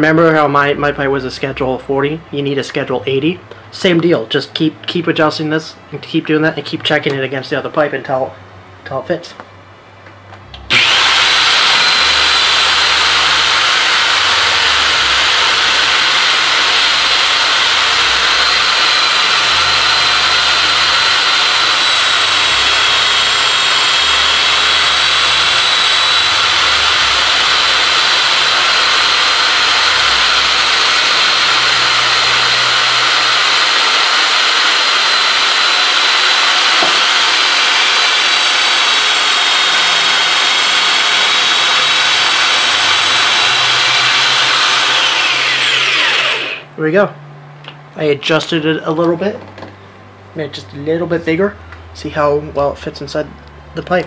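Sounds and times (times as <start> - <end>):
pipe being shaved: 10.6 - 46.7
power drill motor whine: 10.6 - 46.7.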